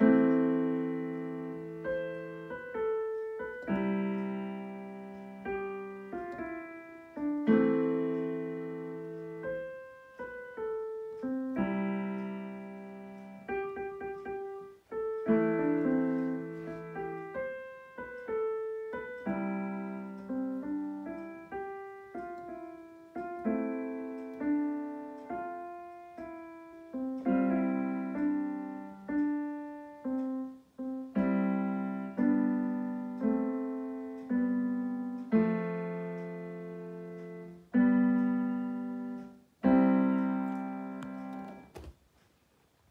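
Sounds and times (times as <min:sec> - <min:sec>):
piano chords and melody: 0:00.0 - 0:41.9.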